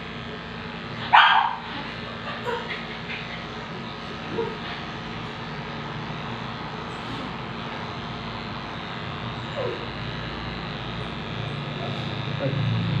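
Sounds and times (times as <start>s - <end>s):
electric clippers running: 0.0s - 13.0s.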